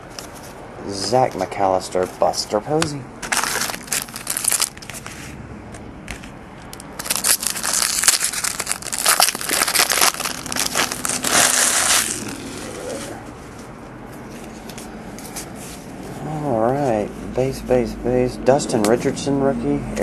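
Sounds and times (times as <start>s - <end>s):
foil wrapper crinkling: 3.2s - 5.2s, 6.7s - 12.6s.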